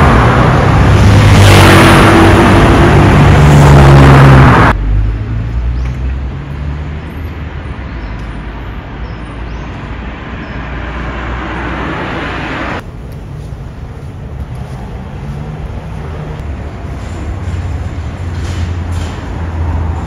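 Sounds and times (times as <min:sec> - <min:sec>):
road traffic: 0:00.0 - 0:20.0.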